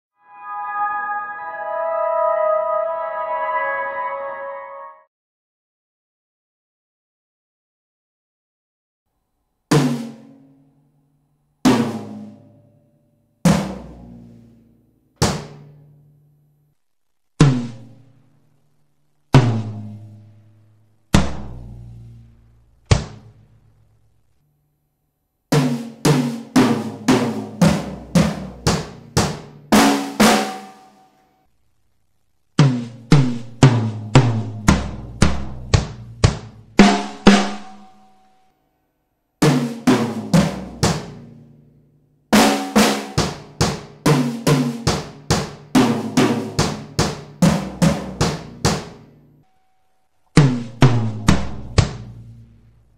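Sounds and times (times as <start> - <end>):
acoustic drum kit: 9.8 - 10.4, 25.6 - 30.9, 32.6 - 37.9, 39.4 - 41.3, 42.4 - 49.0, 50.4 - 52.2.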